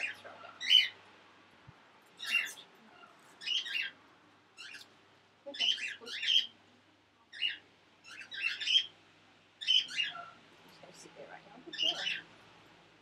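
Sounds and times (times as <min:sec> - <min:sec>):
bird squawking and chirping: 0:00.0 - 0:01.0, 0:02.2 - 0:04.0, 0:04.6 - 0:04.9, 0:05.5 - 0:06.6, 0:07.3 - 0:09.0, 0:09.6 - 0:10.4, 0:11.7 - 0:12.3.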